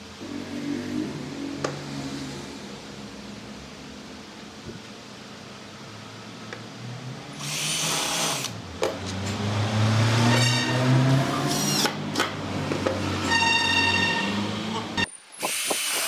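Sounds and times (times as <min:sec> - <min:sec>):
cordless drill driving into wood: 0:11.5 - 0:12.0, 0:15.4 - 0:16.0.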